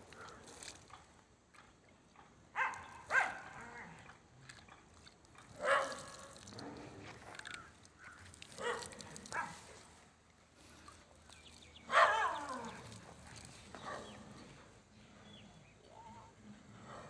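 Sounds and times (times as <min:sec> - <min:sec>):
dog barking: 0:02.6 - 0:03.6, 0:05.6 - 0:06.2, 0:08.6 - 0:09.6, 0:11.9 - 0:12.7.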